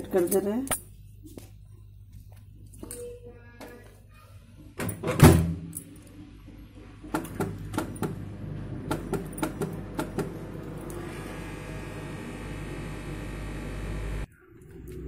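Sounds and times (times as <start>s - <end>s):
microwave humming: 6.3s - 14.4s.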